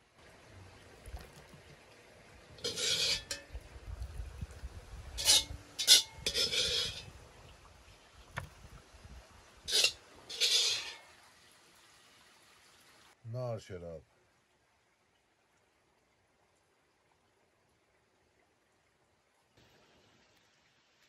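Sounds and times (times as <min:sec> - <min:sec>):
utensils scraping and rubbing: 0:02.6 - 0:03.4, 0:05.2 - 0:07.1, 0:09.7 - 0:11.0
dishes clinking: 0:02.6 - 0:03.5, 0:05.2 - 0:07.1, 0:09.7 - 0:11.0.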